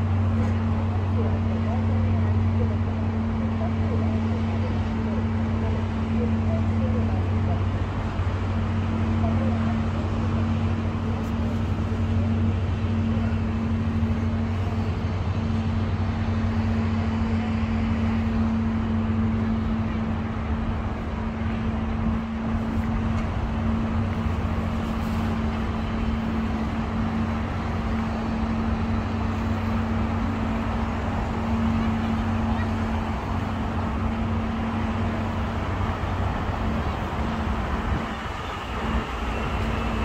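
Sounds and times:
outdoor urban background noise: 0:00.0 - 0:40.0.

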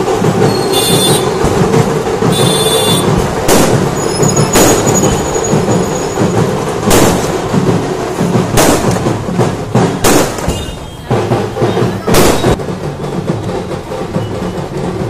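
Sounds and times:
firecracker bangs: 0:00.0 - 0:15.0
music: 0:00.0 - 0:15.0.

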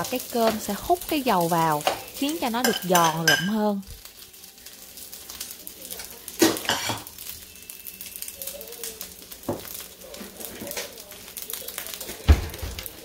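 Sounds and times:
rice sizzling in oil: 0:00.0 - 0:13.0
metal spoon clinking bowl: 0:02.6 - 0:03.5.

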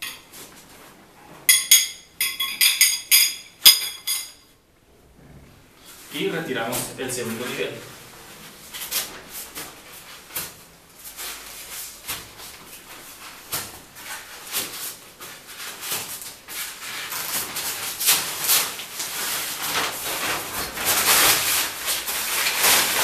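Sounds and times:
nylon fabric rustling: 0:05.6 - 0:23.0.

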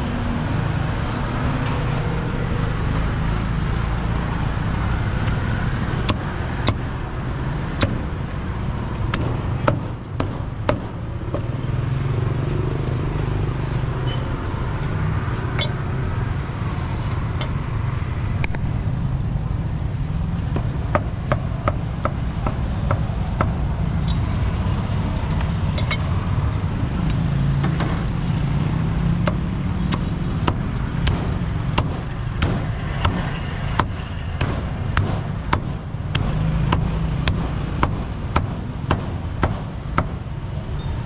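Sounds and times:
low street traffic rumble: 0:00.0 - 0:41.0
cleaver chopping on wooden block: 0:07.8 - 0:08.1, 0:29.2 - 0:40.2.

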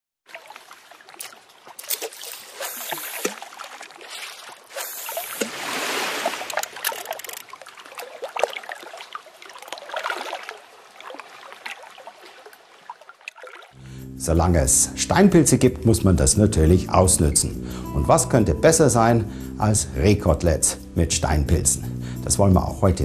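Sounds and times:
water splashing and trickling: 0:00.2 - 0:13.8
water rushing: 0:00.3 - 0:13.8.

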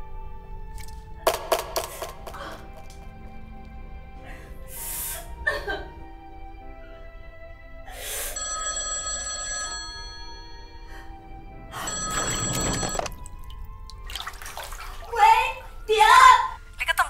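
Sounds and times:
background music: 0:00.0 - 0:17.0
telephone ringing: 0:08.4 - 0:10.9, 0:11.8 - 0:13.3.

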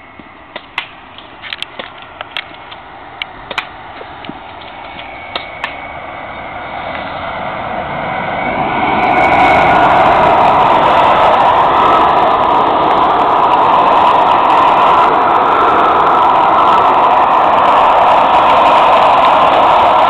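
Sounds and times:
passing vehicle rumble: 0:00.0 - 0:20.0
bb guns firing clicks: 0:00.5 - 0:05.8.

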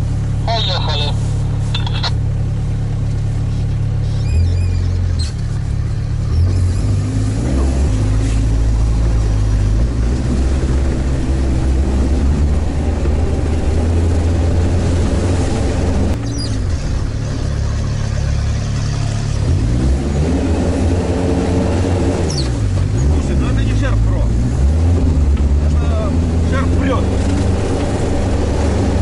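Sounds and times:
diesel engine drone: 0:00.0 - 0:29.0.

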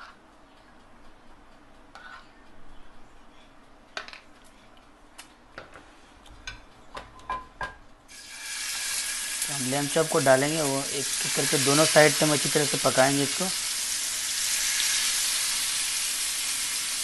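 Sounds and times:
spatula and frying pan knocking: 0:07.0 - 0:07.8.

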